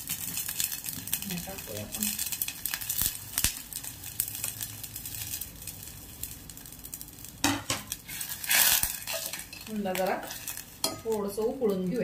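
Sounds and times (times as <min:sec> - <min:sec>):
water boiling in a pot: 0:00.0 - 0:12.0
metal utensil clattering on pot: 0:09.0 - 0:11.2.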